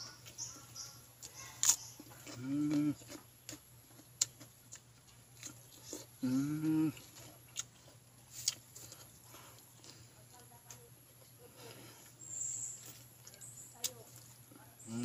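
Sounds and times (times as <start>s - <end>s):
man chewing and lip-smacking: 0.2s - 10.0s
man humming with enjoyment: 6.2s - 7.0s.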